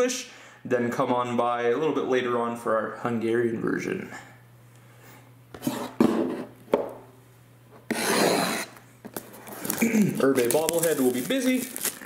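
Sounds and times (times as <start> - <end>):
box sliding on table: 5.6 - 6.5.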